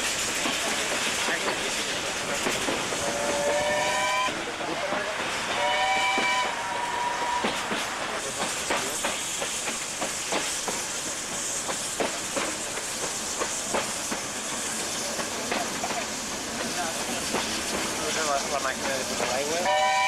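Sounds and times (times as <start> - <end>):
steam train hiss: 0.0 - 20.0
steam locomotive whistle: 3.2 - 4.4, 5.5 - 7.6, 19.6 - 20.0.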